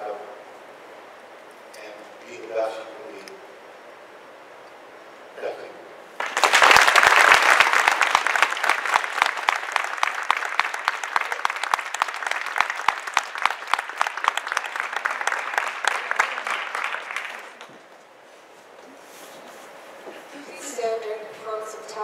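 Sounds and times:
audience applauding: 6.2s - 17.7s.

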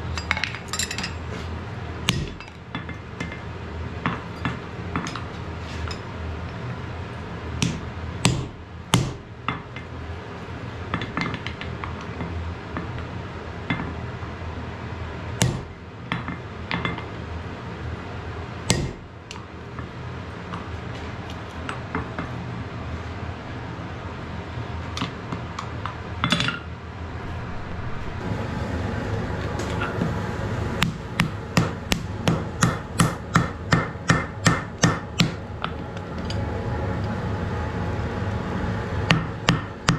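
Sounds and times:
steady background noise: 0.0s - 39.9s
hammer striking iron on anvil: 2.1s - 3.4s, 7.6s - 9.6s, 18.7s - 19.0s, 30.8s - 35.4s.

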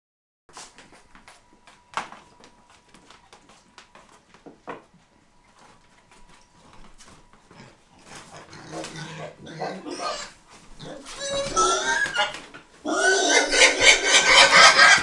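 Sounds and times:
pig grunting: 7.5s - 15.0s.

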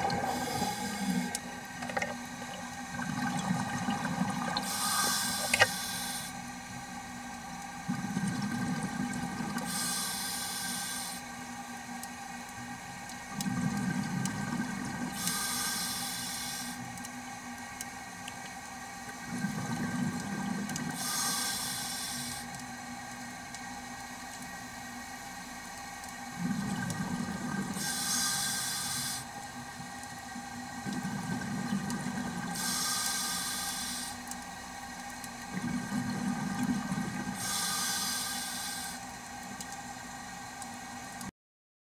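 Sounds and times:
exhaled bubbles rumbling: 0.0s - 5.6s, 7.8s - 9.7s, 13.3s - 15.2s, 19.1s - 21.0s, 26.3s - 27.8s, 29.8s - 32.6s, 35.4s - 37.4s
faint steady hum: 0.0s - 41.3s
regulator hiss on inhale: 0.2s - 1.4s, 4.6s - 6.4s, 9.6s - 11.3s, 15.2s - 16.8s, 20.9s - 22.6s, 27.8s - 29.3s, 32.5s - 34.3s, 37.4s - 39.1s.

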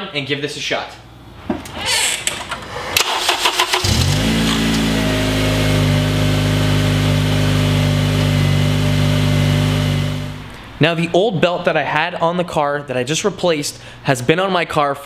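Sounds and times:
starter motor cranking: 1.8s - 5.0s
car engine idling: 3.0s - 10.6s.

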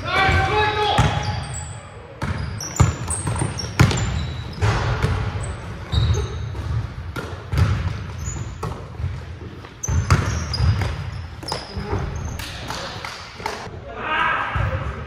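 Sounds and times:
sneakers squeaking on court: 1.0s - 13.0s
basketball bouncing on hardwood: 6.6s - 8.0s.

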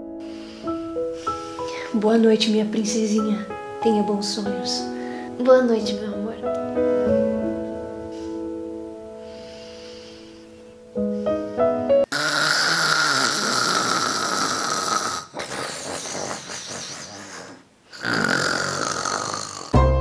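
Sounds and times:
soft piano music: 0.0s - 12.1s
loud human snoring: 12.1s - 19.8s.

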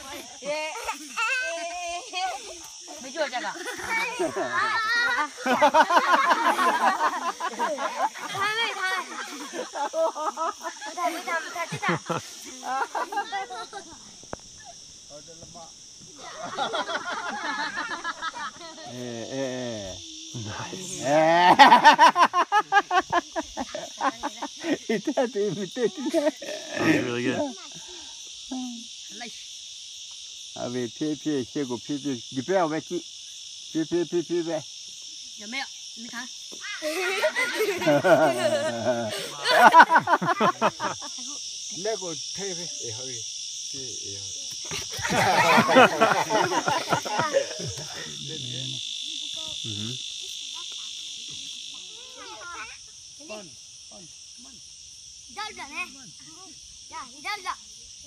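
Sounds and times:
children speaking: 0.0s - 14.8s, 36.1s - 41.4s, 44.5s - 48.2s, 49.2s - 53.5s, 55.3s - 57.7s
high-pitched insect chorus: 0.0s - 58.0s.

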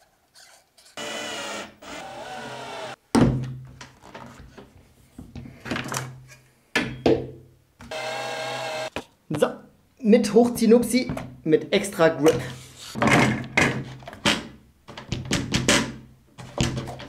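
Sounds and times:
cordless drill running: 1.0s - 3.0s, 7.9s - 8.9s.

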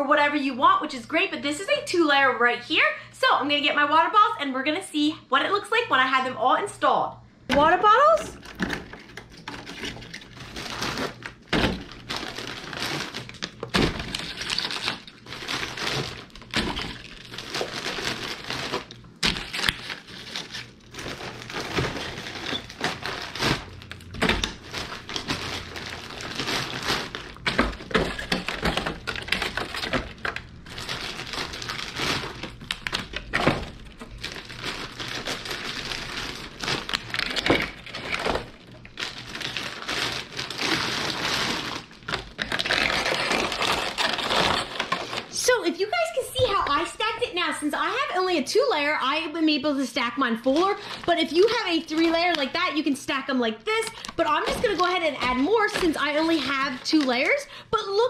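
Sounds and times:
shrink-wrap rustling: 7.6s - 48.2s, 49.8s - 58.0s
plastic bottles clicking and knocking: 26.4s - 30.5s.

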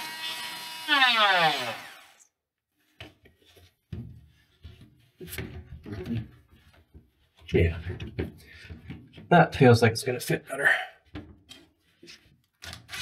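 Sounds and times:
power tool winding down: 0.0s - 2.2s.

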